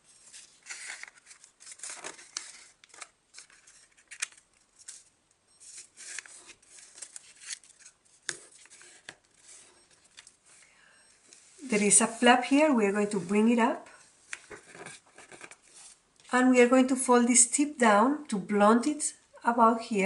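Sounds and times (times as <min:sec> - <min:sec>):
paper rustling and sliding: 0:00.1 - 0:10.6, 0:14.3 - 0:16.0
paper creases crackling: 0:00.3 - 0:05.1, 0:05.7 - 0:10.4.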